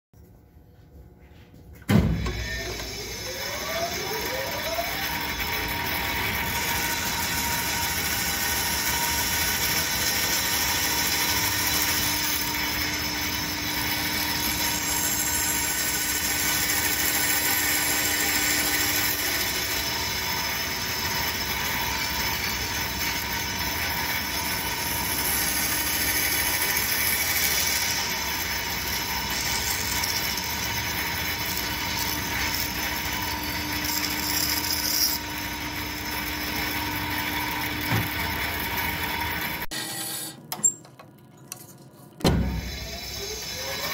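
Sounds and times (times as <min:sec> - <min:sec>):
power saw cutting wood: 0:02.2 - 0:40.4, 0:42.3 - 0:43.9.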